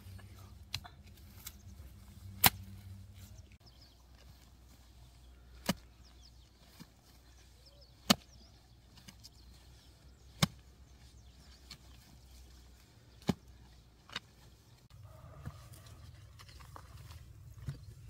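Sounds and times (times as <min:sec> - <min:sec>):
hoe chopping into soil: 0:05.5 - 0:06.0, 0:08.0 - 0:09.3, 0:10.2 - 0:10.7.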